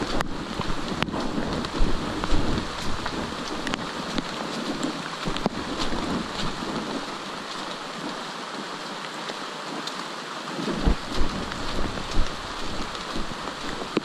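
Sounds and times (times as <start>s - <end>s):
rain on foliage: 0.0s - 14.0s
thumps on microphone: 10.7s - 14.0s.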